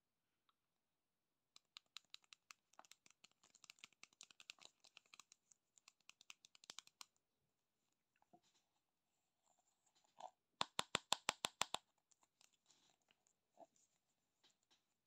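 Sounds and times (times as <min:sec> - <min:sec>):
fingernails tapping on plastic jar: 0:10.6 - 0:11.8.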